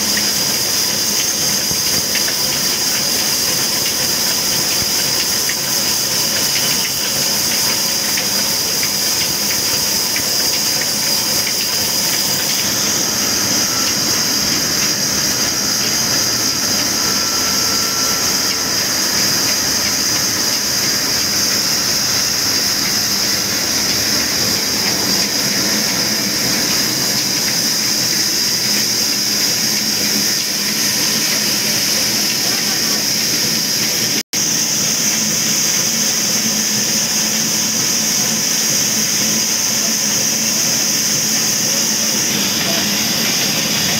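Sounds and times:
band saw hissing: 0.0s - 34.2s.

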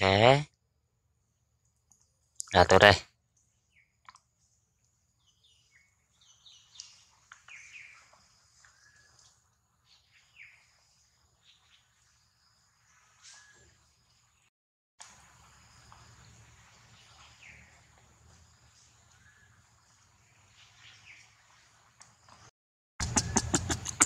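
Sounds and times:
faint bird chirps: 5.2s - 14.5s.

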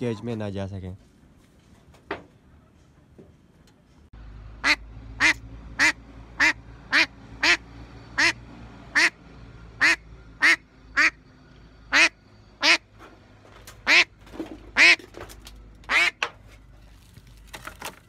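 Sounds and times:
duck quacking loudly: 11.9s - 12.8s, 15.9s - 16.2s.

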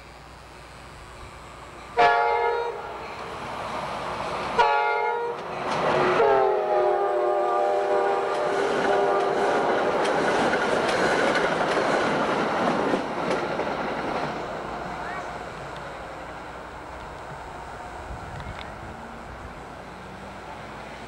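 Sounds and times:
train coaches rolling on rails: 1.0s - 21.0s
locomotive air horn: 2.0s - 3.2s, 4.6s - 5.4s, 6.0s - 9.7s.

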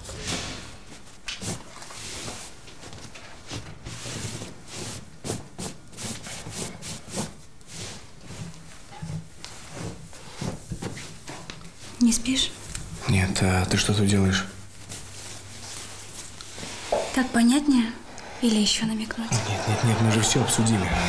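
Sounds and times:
footsteps on floor: 15.8s - 17.4s, 19.3s - 21.0s.

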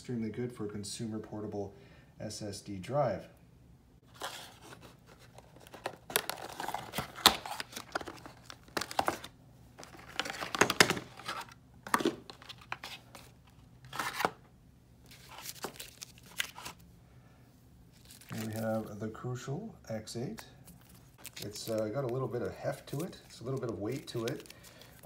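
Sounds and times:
packaging rustling and crinkling: 4.1s - 14.4s, 15.1s - 16.8s, 17.9s - 18.9s, 20.6s - 25.0s.

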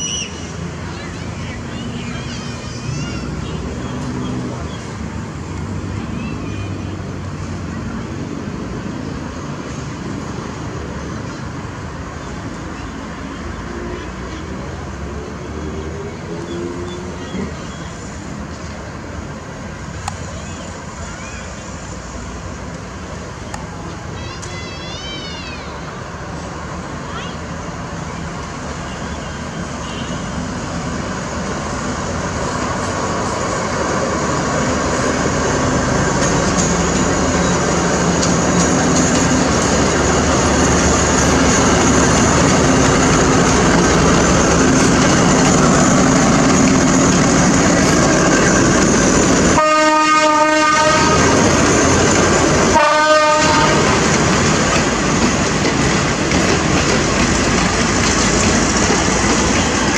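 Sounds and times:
diesel train passing: 0.0s - 59.9s
train wheels on rails: 0.0s - 59.9s
train horn blasts: 49.5s - 51.5s, 52.7s - 54.1s.

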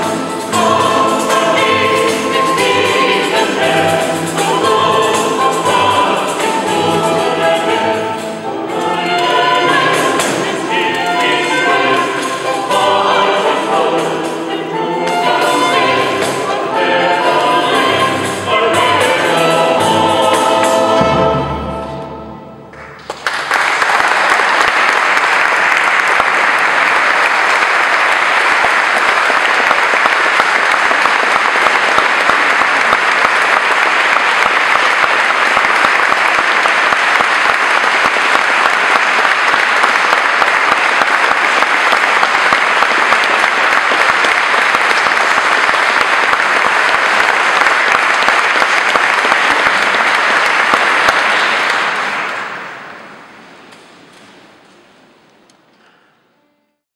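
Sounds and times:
choir and ensemble performing: 0.0s - 56.8s
audience applauding: 22.7s - 53.4s.

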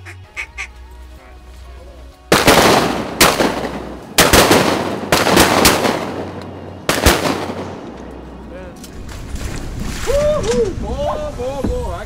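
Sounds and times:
shotgun blasts echoing: 2.3s - 7.8s.

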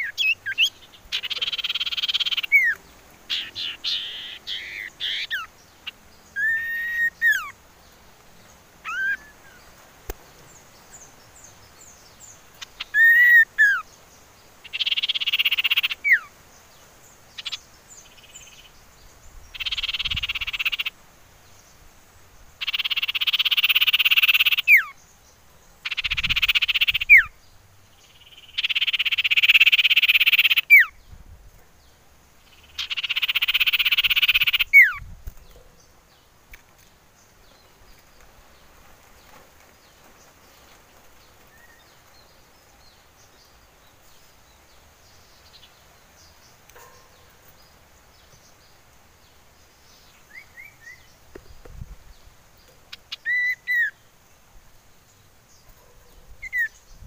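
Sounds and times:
bird churring trills: 0.0s - 7.6s, 19.5s - 20.9s, 32.6s - 35.0s.

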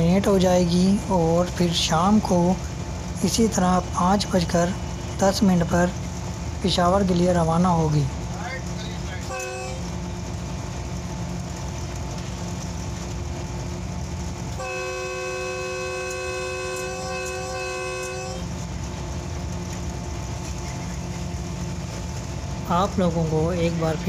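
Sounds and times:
locomotive rumbling on track: 0.0s - 24.0s
locomotive horn chord: 9.2s - 10.1s, 14.5s - 18.7s.

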